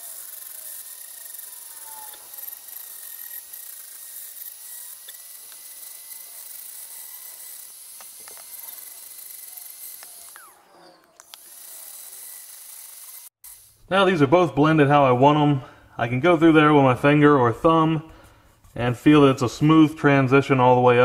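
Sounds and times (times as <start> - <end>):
high steady grinder whir: 0.0 - 13.7.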